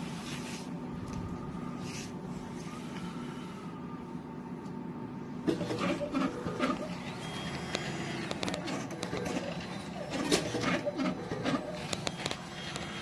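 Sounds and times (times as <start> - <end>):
cutting machine humming: 5.5 - 13.0
machine clatter: 7.7 - 13.0.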